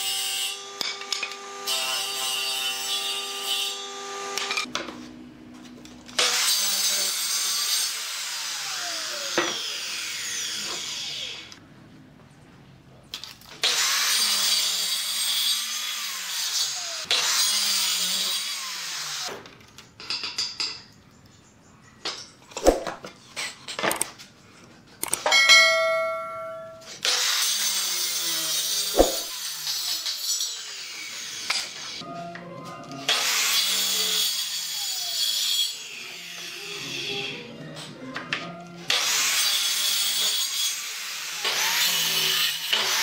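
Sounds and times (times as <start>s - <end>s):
circular saw cutting wood: 0.0s - 4.7s, 6.1s - 11.6s, 13.6s - 19.4s, 26.9s - 32.0s, 33.1s - 37.4s, 38.9s - 43.0s.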